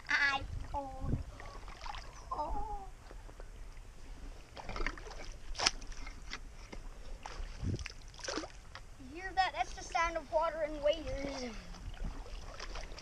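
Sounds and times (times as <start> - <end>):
water splashing around wading legs: 1.2 - 2.3, 4.4 - 8.9, 11.6 - 13.0.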